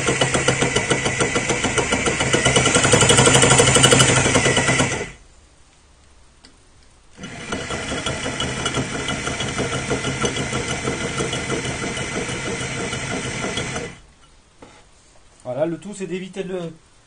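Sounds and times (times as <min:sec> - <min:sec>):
electric drill grinding ceramic: 0:00.0 - 0:05.2, 0:07.2 - 0:14.1.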